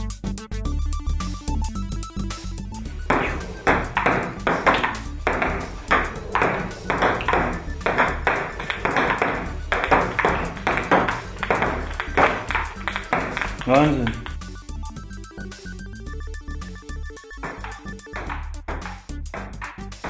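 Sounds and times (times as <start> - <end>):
table tennis ball clicking: 3.1 - 14.4, 17.4 - 20.0.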